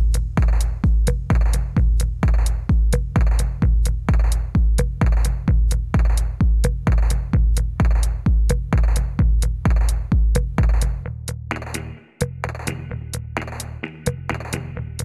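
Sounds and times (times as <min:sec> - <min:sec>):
deep kick drum: 0:00.0 - 0:15.0
electronic music: 0:11.5 - 0:15.0.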